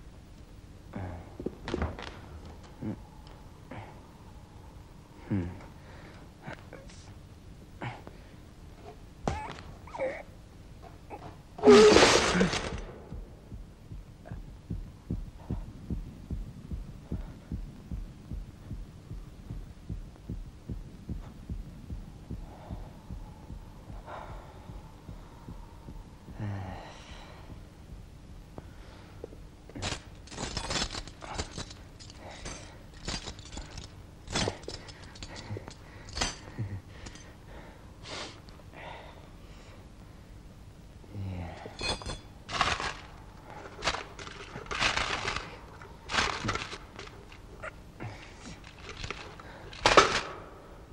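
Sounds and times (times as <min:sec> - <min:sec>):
heartbeat thumping: 0:12.7 - 0:26.6, 0:27.4 - 0:28.7
sharp clicks and cracks: 0:41.8 - 0:50.5.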